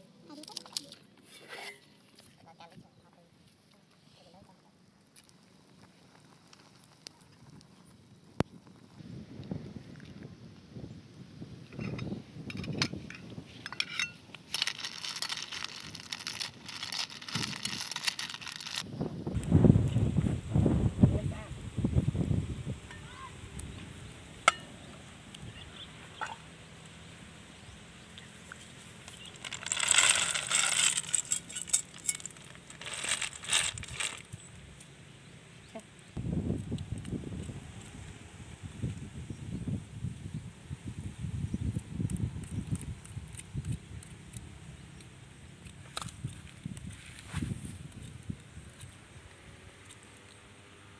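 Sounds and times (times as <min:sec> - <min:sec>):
shells clinking against metal pot: 0:13.6 - 0:18.8, 0:29.1 - 0:34.3.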